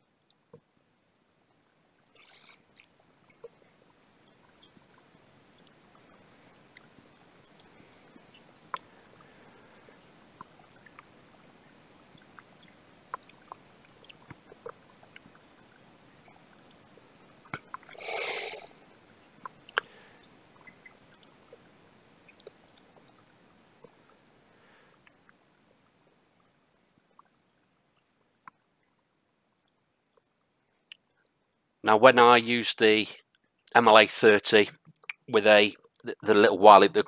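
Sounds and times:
faint steady hiss: 0:00.0 - 0:37.0
sharp clicks: 0:05.6 - 0:05.8, 0:20.6 - 0:21.4.

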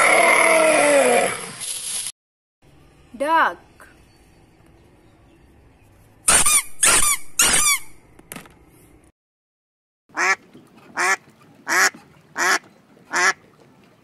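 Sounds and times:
rubber duck toys squeaking: 0:06.3 - 0:07.9
duck quacking: 0:10.2 - 0:10.4, 0:11.0 - 0:13.4.

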